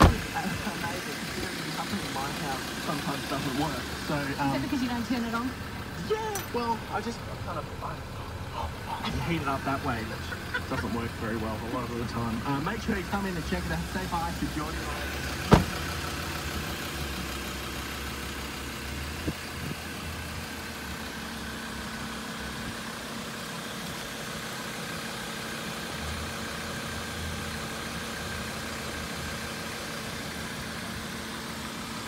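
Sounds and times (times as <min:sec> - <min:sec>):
diesel engine idling: 0:00.0 - 0:32.0.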